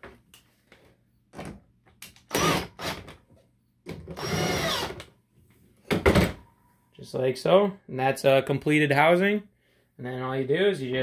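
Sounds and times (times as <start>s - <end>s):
cordless drill driving screws: 2.3s - 3.1s, 4.1s - 5.0s.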